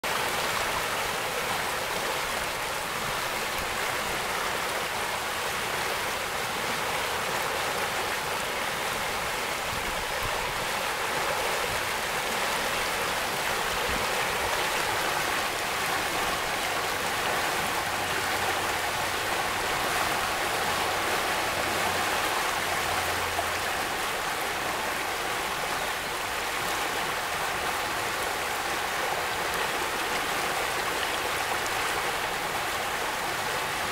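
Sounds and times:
flooded creek rushing: 0.0 - 33.9.

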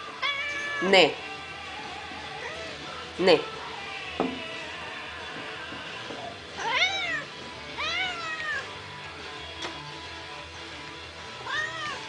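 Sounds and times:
cat meowing: 0.1 - 0.9, 6.6 - 8.7, 11.4 - 12.0.

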